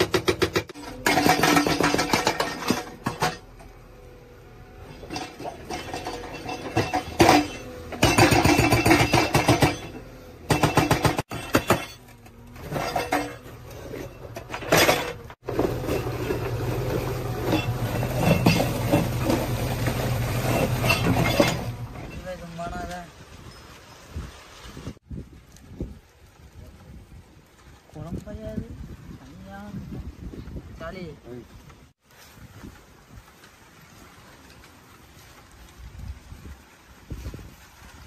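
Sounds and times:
hydraulic breaker hammering rock: 0.0 - 3.6, 4.8 - 12.0, 14.3 - 22.2
diesel engine running: 0.8 - 22.2.

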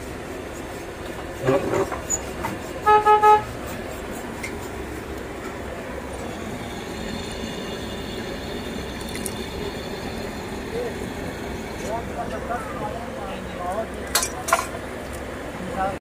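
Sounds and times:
street noise hum: 0.0 - 16.0
vehicle horn toots: 2.8 - 3.5.

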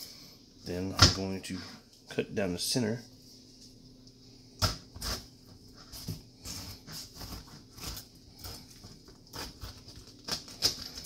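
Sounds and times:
knife crunching through pineapple: 5.9 - 11.0.

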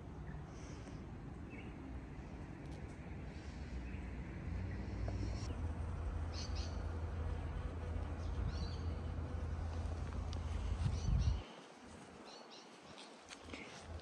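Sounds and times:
low outdoor rumble: 0.0 - 12.2
bird chirps: 6.3 - 6.8.

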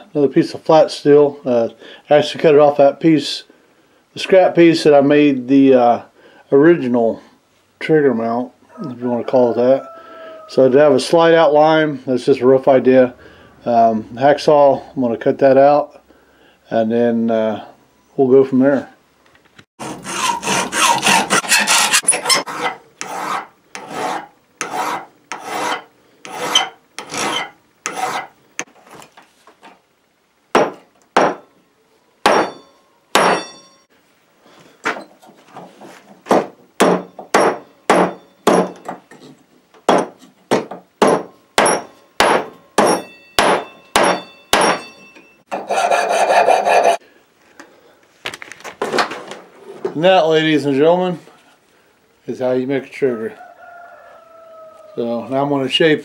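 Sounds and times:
hacksaw cutting steel: 19.8 - 28.3, 41.6 - 47.0.

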